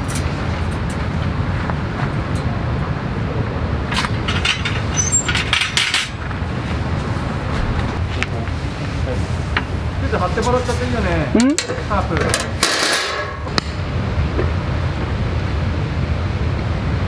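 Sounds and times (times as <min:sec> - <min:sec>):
wind rumble on microphone: 0:00.0 - 0:12.3.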